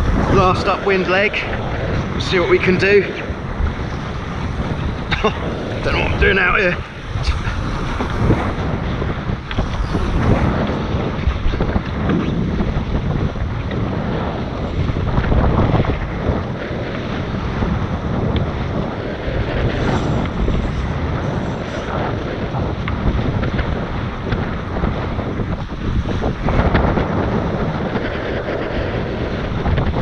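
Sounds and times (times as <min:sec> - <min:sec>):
wind noise on microphone: 0:00.0 - 0:30.0.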